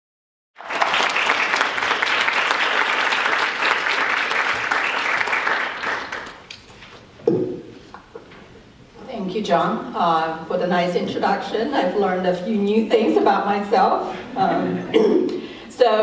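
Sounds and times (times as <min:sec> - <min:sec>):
audience applauding: 0:00.6 - 0:06.6.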